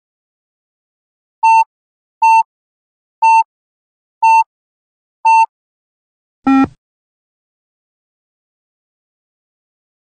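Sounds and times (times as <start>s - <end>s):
short electronic beeps: 1.4s - 2.5s, 3.2s - 3.5s, 4.2s - 4.4s, 5.3s - 5.5s, 6.5s - 6.8s.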